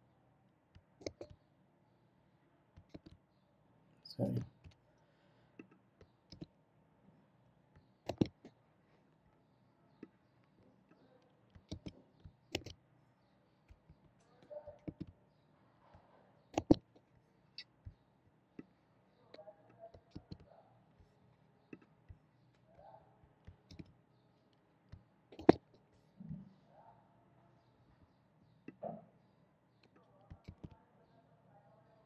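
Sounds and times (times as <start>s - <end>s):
mouse and keyboard clicks: 0.8s - 1.4s, 2.8s - 3.2s, 5.6s - 6.5s, 7.8s - 8.6s, 10.9s - 12.8s, 13.7s - 15.2s, 15.9s - 18.0s, 19.3s - 22.2s, 23.4s - 24.0s, 24.9s - 25.8s, 29.8s - 30.8s.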